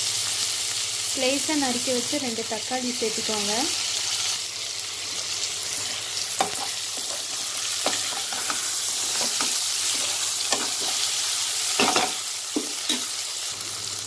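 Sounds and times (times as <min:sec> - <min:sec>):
onions sizzling in oil: 0:00.0 - 0:14.0
spatula scraping a pan: 0:05.7 - 0:13.2.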